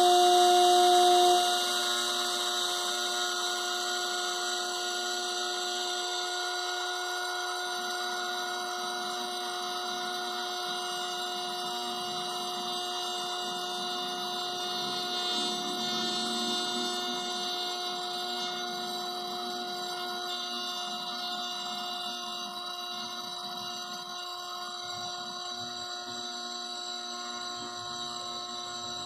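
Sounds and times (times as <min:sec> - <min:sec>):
small electric motor whining: 0:00.0 - 0:29.0.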